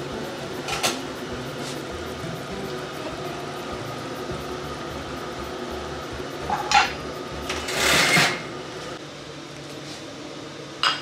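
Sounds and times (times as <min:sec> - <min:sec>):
steady low hum: 0:00.0 - 0:11.0
grill pan and plate clattering: 0:06.4 - 0:08.5.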